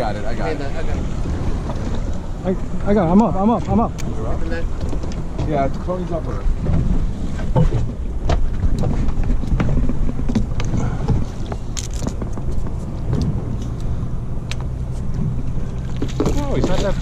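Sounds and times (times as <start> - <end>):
boat engine idling: 0.0 - 17.0
wind on microphone: 3.6 - 17.0.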